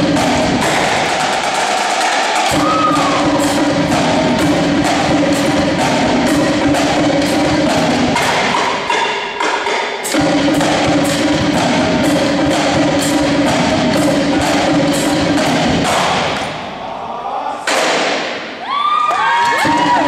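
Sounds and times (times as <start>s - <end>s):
bass drum notes: 0.0s - 1.6s, 2.4s - 9.4s, 10.1s - 16.8s
drumline percussion cadence: 0.0s - 20.0s.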